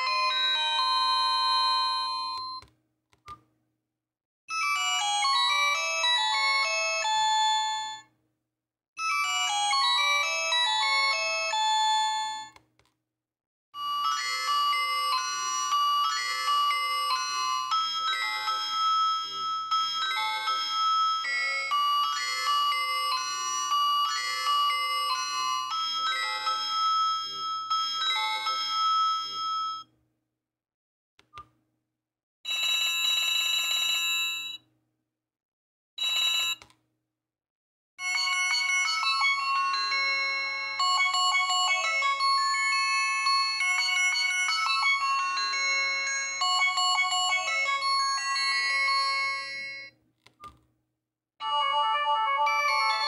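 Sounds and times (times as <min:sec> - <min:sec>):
phone ringtone melodies: 0:00.0 - 0:02.6, 0:04.5 - 0:08.0, 0:09.0 - 0:12.5, 0:13.8 - 0:29.9, 0:38.0 - 0:49.9, 0:51.4 - 0:53.0
phone button click: 0:50.2 - 0:50.7.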